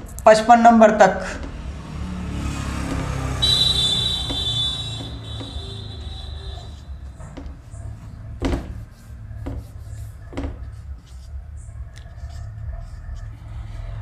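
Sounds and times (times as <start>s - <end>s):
marker writing on whiteboard: 2.8s - 14.0s.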